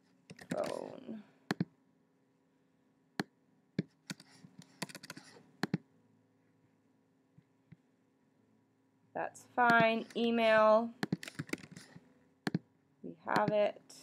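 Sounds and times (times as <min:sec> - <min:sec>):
keyboard keystrokes and clicks: 0:00.3 - 0:00.9, 0:01.5 - 0:01.7, 0:03.2 - 0:05.8, 0:09.7 - 0:10.3, 0:11.0 - 0:12.6, 0:13.3 - 0:13.6.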